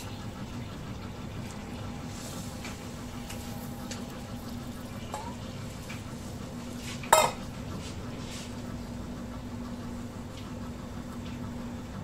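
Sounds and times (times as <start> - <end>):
steady low hum: 0.0 - 12.0
dish clanking against pot: 5.1 - 5.4, 7.1 - 7.4.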